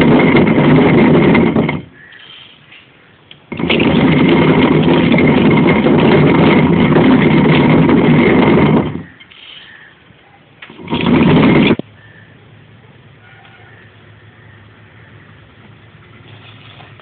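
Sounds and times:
stone quern grinding grain: 0.0s - 2.6s, 3.5s - 9.9s, 10.7s - 11.8s.

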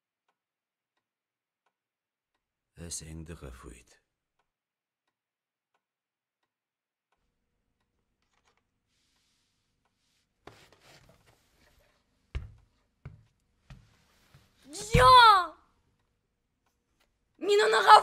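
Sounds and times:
soft rustles and knocks: 8.2s - 15.1s.

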